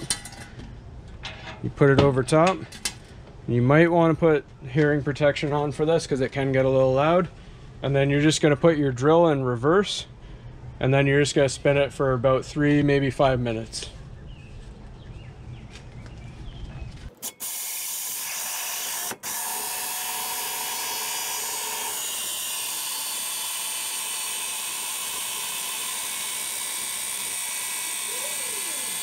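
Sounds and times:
drill spinning mower reel grinding: 17.1 - 29.0.

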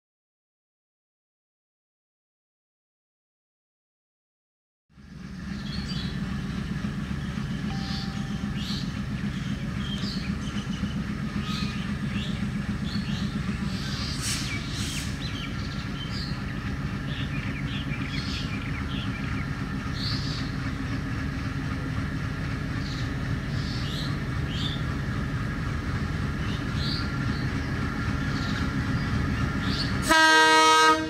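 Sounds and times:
diesel locomotive engine droning: 4.9 - 31.0
bird chirps: 7.7 - 16.4.

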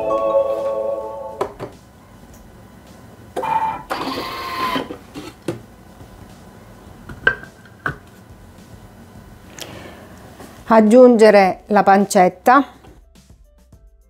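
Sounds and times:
mechanical whir of lid locks: 3.4 - 5.6.

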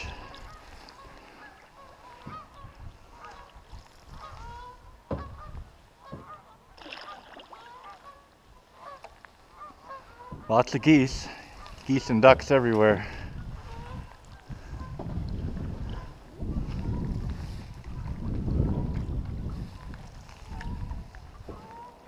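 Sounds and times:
geese honking: 0.0 - 12.4, 13.4 - 15.0, 21.4 - 22.0
dull knock: 5.1 - 5.4, 6.1 - 6.3.

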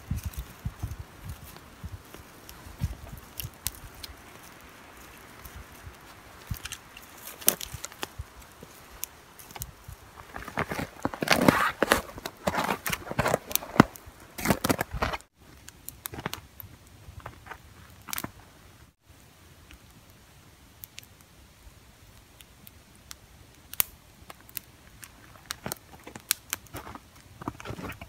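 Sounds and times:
rustle of dry tinder: 0.0 - 15.8
campfire crackling and snapping: 0.0 - 28.0.

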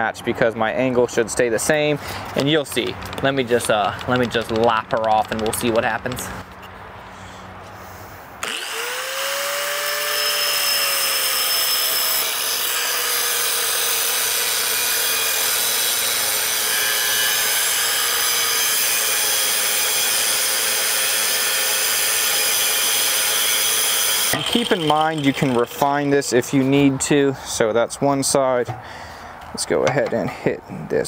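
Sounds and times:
angle grinder motor whine: 8.4 - 26.4
grinder wheel cutting steel: 8.4 - 26.4.

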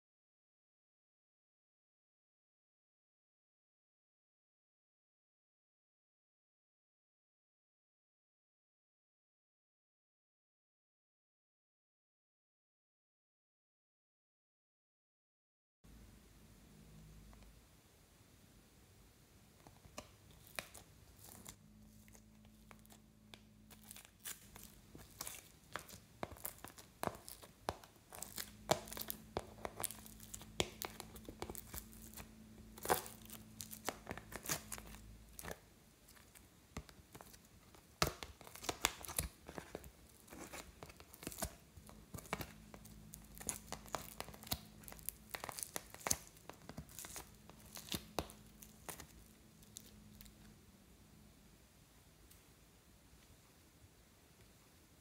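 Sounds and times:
slime sticky crackles and pops: 19.9 - 23.0, 23.7 - 50.3.

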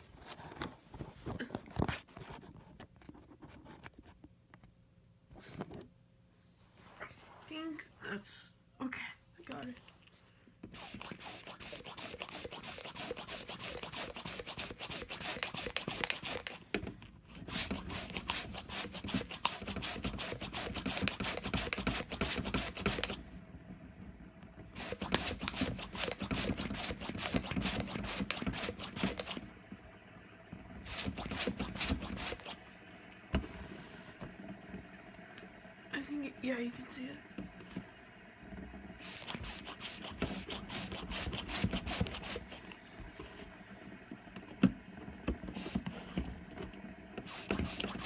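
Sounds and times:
balloon pump puffing air: 10.6 - 23.3, 24.7 - 29.5, 30.8 - 32.6, 39.0 - 43.6, 45.5 - 46.4, 47.2 - 48.0.

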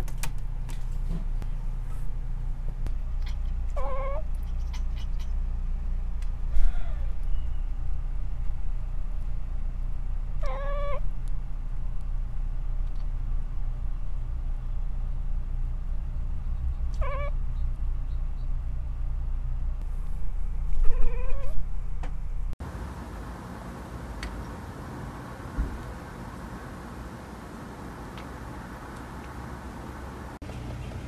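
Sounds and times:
steady low hum: 0.0 - 31.0
cat chirping: 3.1 - 5.4, 10.4 - 11.0, 16.9 - 18.5, 20.8 - 21.6.

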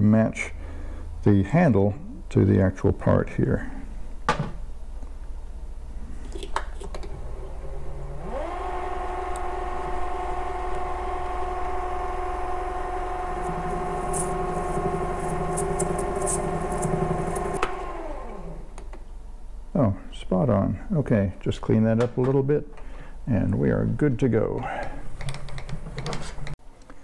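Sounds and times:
lathe motor whining: 7.1 - 18.8
high ticks of metal cutting: 14.0 - 17.6.

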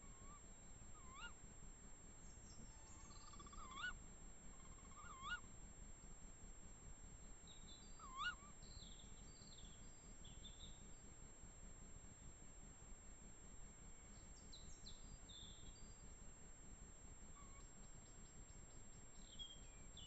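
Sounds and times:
owl calling: 0.0 - 1.4, 2.5 - 5.6, 7.5 - 10.6, 17.3 - 17.9
small birds chirping: 0.0 - 1.4, 2.2 - 6.2, 7.2 - 11.2, 13.9 - 16.2, 17.4 - 20.0.

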